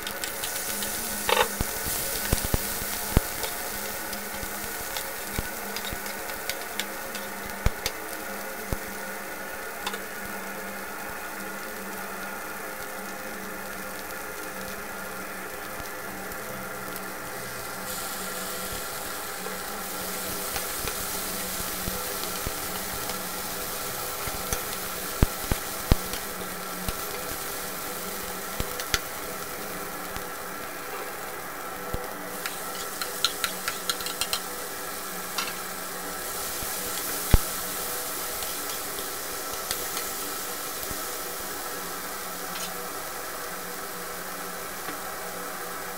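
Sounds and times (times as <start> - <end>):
faint steady hum: 0.0 - 45.9
fish and onions sizzling in a pan: 0.0 - 45.9
metal spoon scraping a pan: 1.2 - 1.6, 32.4 - 34.5.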